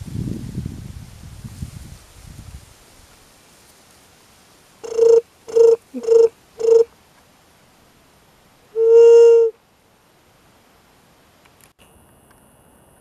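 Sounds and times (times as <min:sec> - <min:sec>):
dove hooting: 0:04.8 - 0:06.9, 0:08.8 - 0:09.6.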